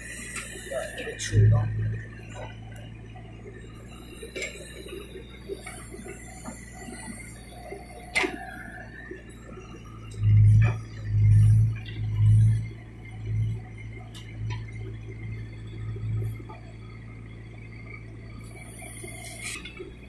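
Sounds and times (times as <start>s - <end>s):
diesel engine humming: 0.0s - 20.0s.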